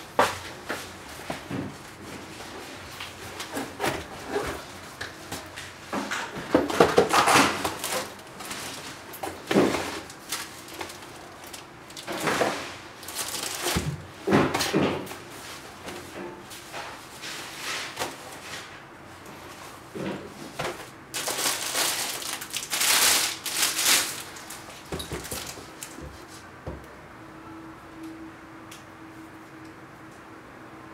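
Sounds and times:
plastic wrapping rustling: 6.6 - 14.1, 20.5 - 26.5.

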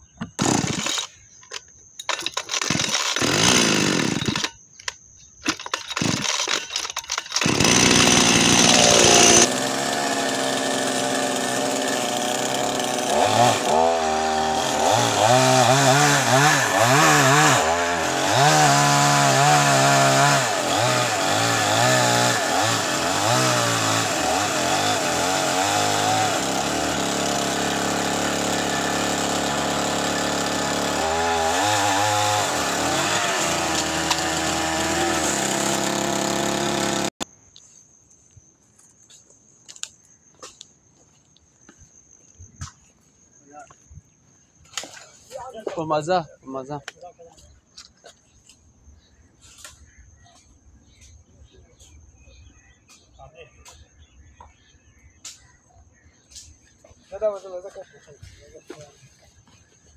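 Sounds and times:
chainsaw starting and revving: 0.4 - 1.2, 2.0 - 4.6, 5.4 - 37.2.

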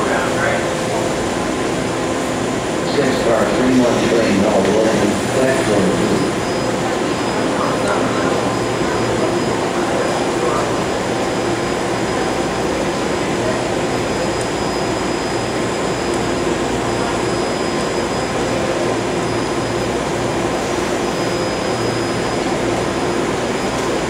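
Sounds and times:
train equipment humming: 0.0 - 24.0.

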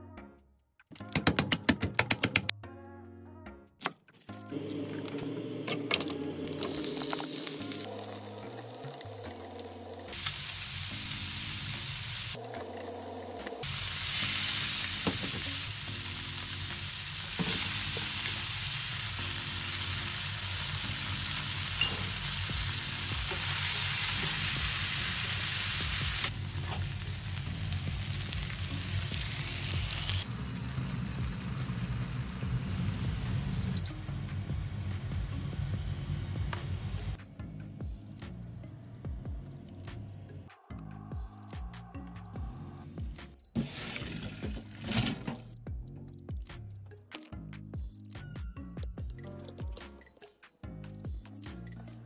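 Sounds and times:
water boiling in a pot: 6.5 - 33.8
meat sizzling in a frying pan: 6.7 - 12.4, 13.6 - 33.2.

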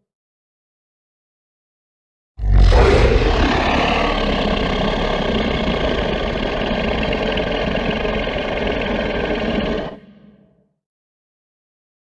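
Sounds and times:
monster roar: 2.4 - 10.5.

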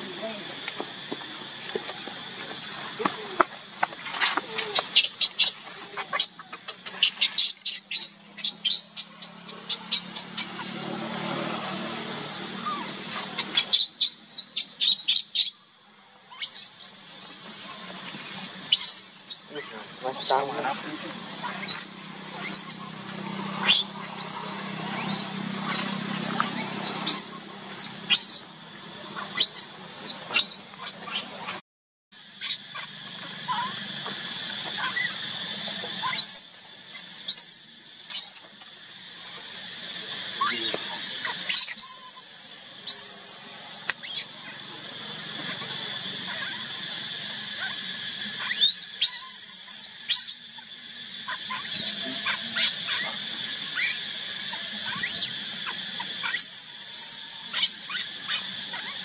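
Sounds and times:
noisy hiss: 0.0 - 31.6, 32.2 - 59.0
baby monkey squealing: 4.3 - 10.8, 12.6 - 15.5, 16.3 - 28.5, 29.2 - 32.9, 33.5 - 33.8, 34.8 - 35.2, 36.0 - 38.4, 40.4 - 44.4, 47.6 - 59.0
steady high drone: 17.1 - 31.6.

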